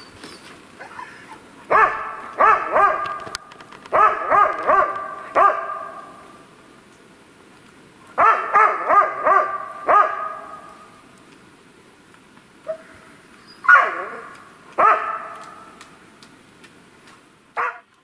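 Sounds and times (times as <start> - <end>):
dog barking: 1.7 - 3.3, 3.9 - 6.2, 8.2 - 10.7, 13.6 - 15.7, 17.6 - 17.9.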